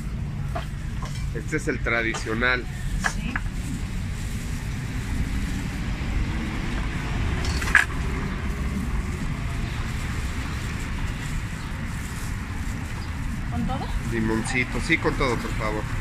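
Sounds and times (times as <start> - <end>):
street traffic rumble: 0.0 - 16.0.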